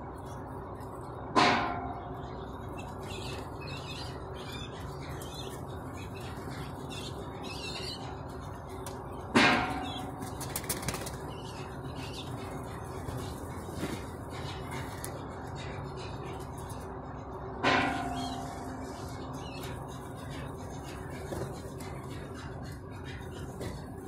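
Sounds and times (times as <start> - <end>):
pigeons flapping wings: 10.2 - 11.4.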